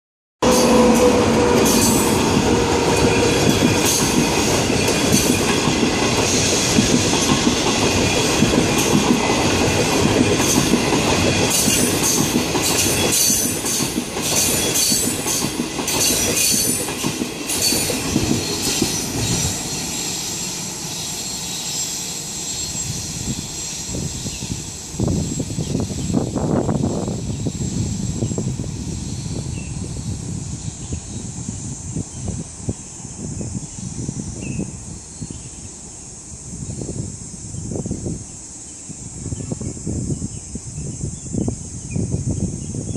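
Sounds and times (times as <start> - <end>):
train wheels clattering over rail joints: 0.4 - 20.4.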